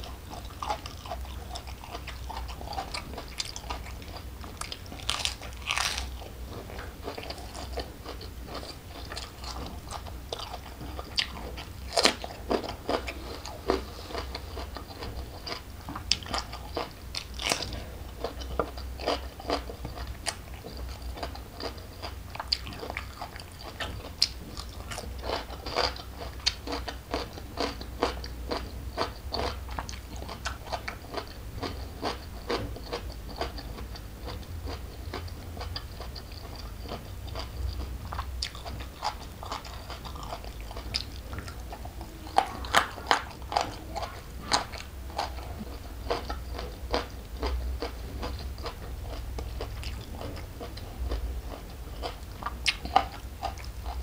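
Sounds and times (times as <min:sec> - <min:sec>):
wet chewing: 0:00.0 - 0:54.0
crisp crunches of raw vegetables: 0:04.9 - 0:06.2.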